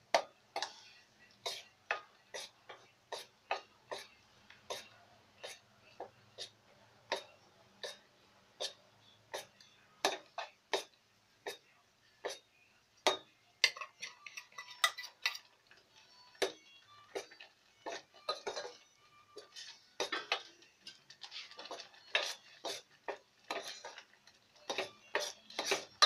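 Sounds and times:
spoon scraping steel pot: 0.6 - 5.6, 13.6 - 26.0.

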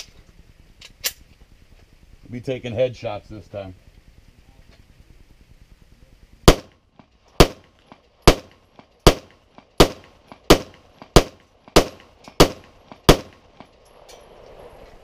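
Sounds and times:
pistol shots: 6.5 - 6.8, 7.4 - 13.7.

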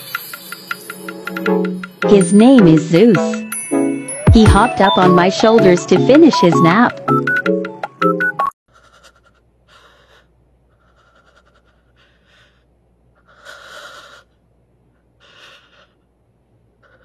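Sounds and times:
soft breaths: 8.7 - 17.0.

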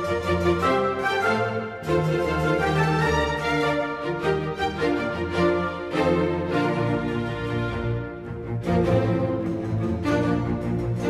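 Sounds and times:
instrumental background music: 0.0 - 11.0.

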